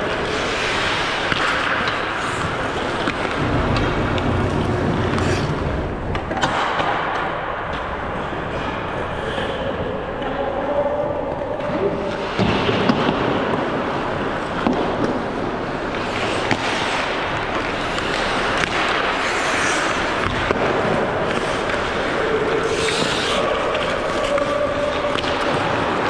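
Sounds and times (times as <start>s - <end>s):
hockey sticks and puck clacking: 0.0s - 10.6s, 11.3s - 26.0s
skate blades scraping ice: 0.2s - 5.6s, 15.9s - 26.0s.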